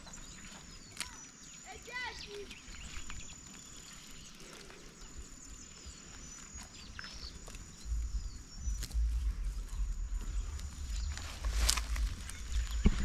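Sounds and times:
bird chirps: 0.0s - 13.0s
low rumbling noise: 7.2s - 13.0s.

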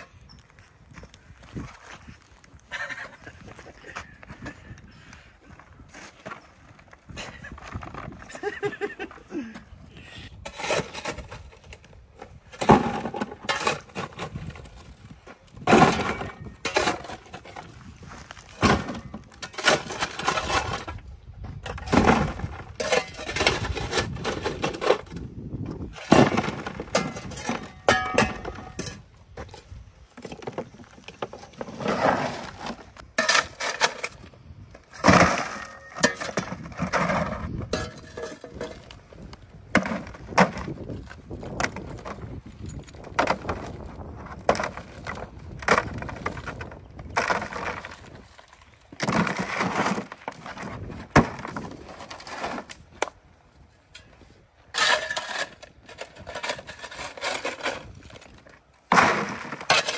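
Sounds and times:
concrete chunks clattering: 10.4s - 53.1s, 54.7s - 59.9s
steel bar striking concrete: 27.0s - 29.0s.

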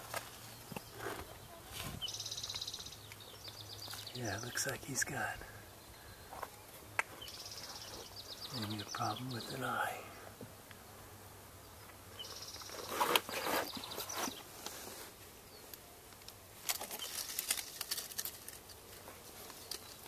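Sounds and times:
faint outdoor hiss: 0.0s - 20.0s
rustling and clicks: 15.7s - 20.0s.

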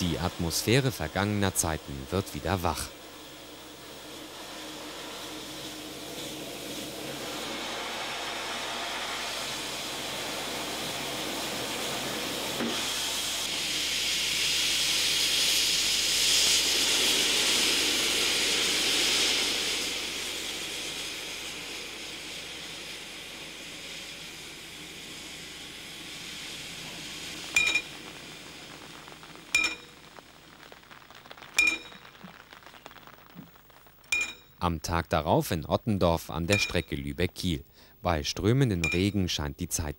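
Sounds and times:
steam locomotive hissing: 0.0s - 32.0s
railway warning bell strikes: 29.6s - 29.8s, 38.8s - 39.2s.

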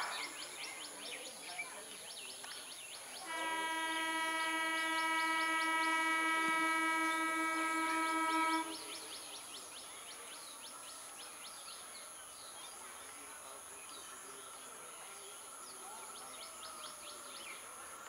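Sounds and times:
faint chirping: 0.0s - 17.8s
train horn blast: 3.2s - 9.0s.

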